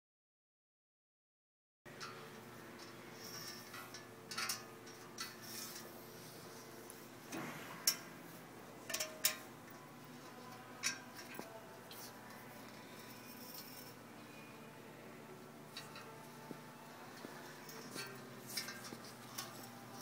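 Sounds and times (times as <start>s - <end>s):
hands handling metal ring: 17.2s - 20.0s.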